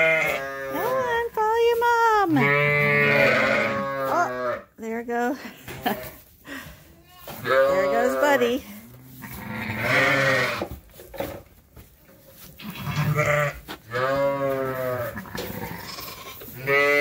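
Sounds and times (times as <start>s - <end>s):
sheep bleating: 0.0s - 1.0s, 2.3s - 4.6s, 7.4s - 8.4s, 9.2s - 10.6s, 12.6s - 17.0s.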